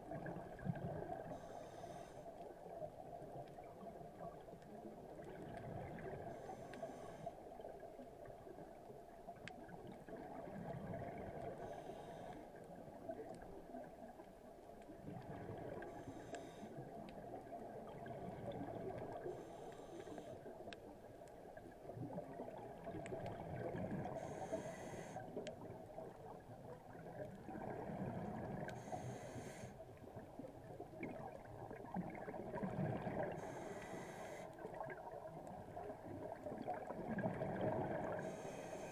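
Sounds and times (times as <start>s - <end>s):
exhaled bubbles gurgling: 0.0s - 1.4s, 2.7s - 6.6s, 9.4s - 11.8s, 14.9s - 19.6s, 20.5s - 29.0s, 29.8s - 38.9s
steady underwater hiss: 0.0s - 38.9s
regulator inhalation hiss: 1.4s - 2.2s, 24.2s - 25.2s, 33.4s - 34.5s.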